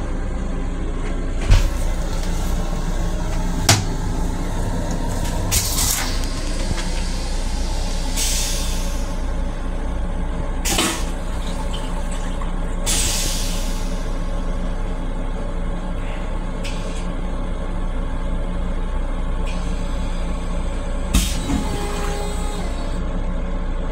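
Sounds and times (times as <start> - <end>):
train rumble: 0.0 - 23.9
toilet flushing hiss and rinse: 1.6 - 9.3, 10.6 - 14.2, 21.1 - 23.0.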